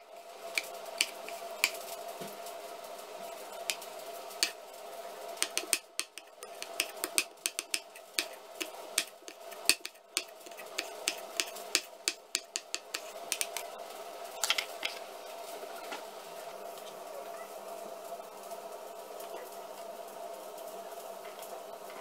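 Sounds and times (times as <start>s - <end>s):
faint steady hum: 0.0s - 22.0s
knife chopping on board: 0.6s - 1.8s, 5.4s - 13.7s.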